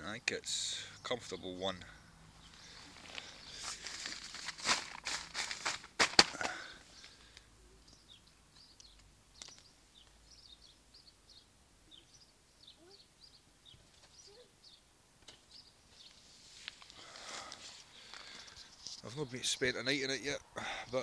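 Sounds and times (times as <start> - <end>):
small birds chirping: 0.0 - 5.7, 6.3 - 21.0
nylon fabric rustling: 2.8 - 6.4.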